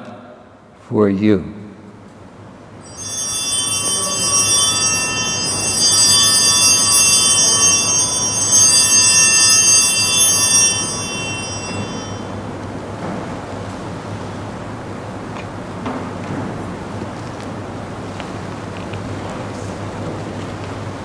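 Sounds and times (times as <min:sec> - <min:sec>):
altar bells ringing: 0:02.8 - 0:14.9.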